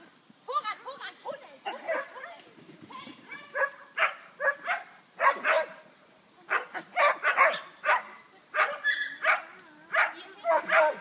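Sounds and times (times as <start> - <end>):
dog barking: 1.7 - 2.2, 3.5 - 5.8, 6.5 - 11.0.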